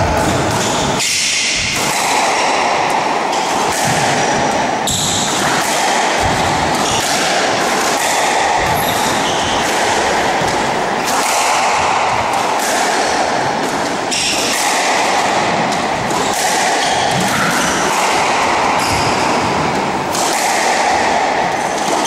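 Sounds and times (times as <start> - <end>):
squash ball hitting rackets and walls: 0.0 - 22.0.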